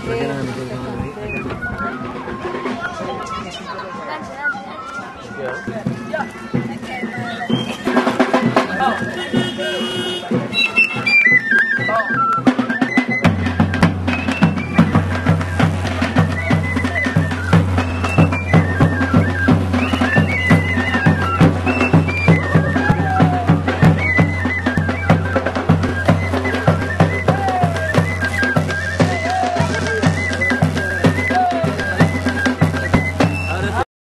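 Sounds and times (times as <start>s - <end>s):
hand drum beating: 12.4s - 33.8s.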